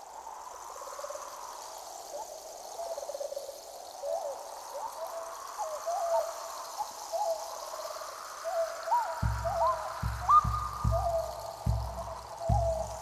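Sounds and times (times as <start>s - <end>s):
low drum beat: 9.2s - 13.0s.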